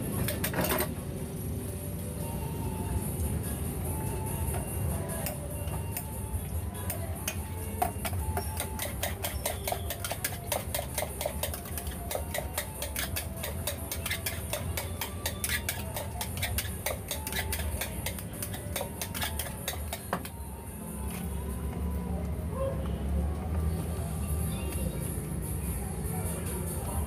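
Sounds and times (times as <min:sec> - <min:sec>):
utensil clinking against metal mug: 0:07.3 - 0:20.0.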